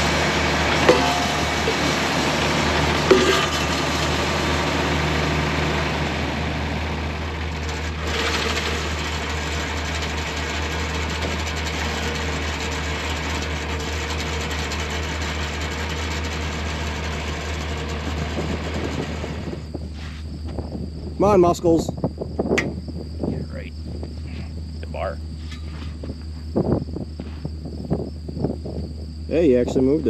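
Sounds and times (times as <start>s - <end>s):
tractor engine idling: 0.0s - 20.0s.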